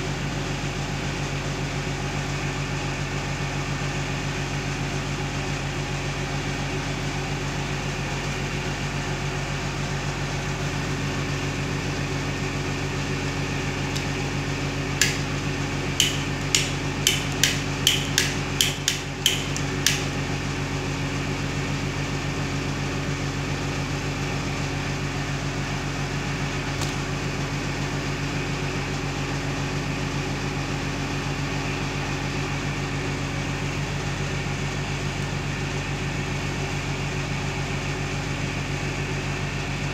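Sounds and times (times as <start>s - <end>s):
steady low hum: 13.1s - 20.8s
wall switch clicking: 13.9s - 14.2s, 15.0s - 15.4s, 16.0s - 20.2s.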